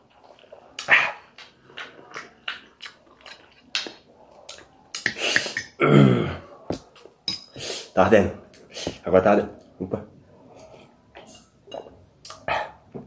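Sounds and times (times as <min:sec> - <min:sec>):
man groaning: 0:05.8 - 0:06.5.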